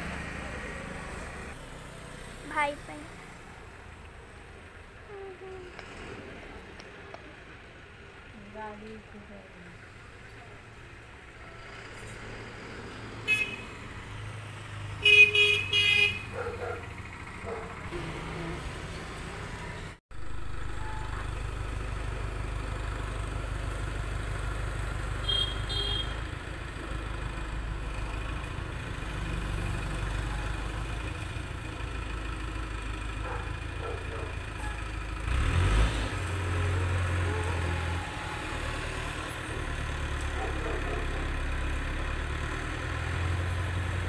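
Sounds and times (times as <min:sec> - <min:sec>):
diesel engine rumbling: 0:00.0 - 0:44.0
vehicle horns honking: 0:13.2 - 0:13.9, 0:15.0 - 0:16.4, 0:25.2 - 0:26.2.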